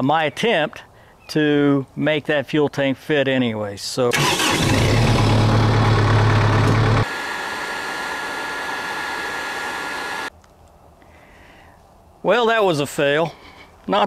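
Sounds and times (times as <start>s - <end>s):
deep hum: 4.6s - 7.0s
torch flame hissing: 7.0s - 10.3s.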